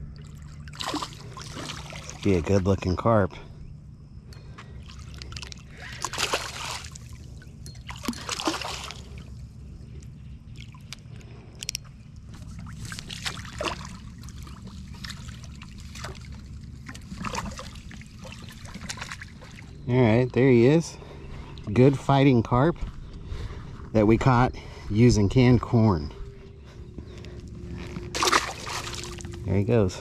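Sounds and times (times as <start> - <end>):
steady low hum: 0.0 - 30.0
fish splashing in water: 0.2 - 2.3, 4.8 - 7.3, 7.9 - 9.2, 12.5 - 19.8, 28.1 - 29.4.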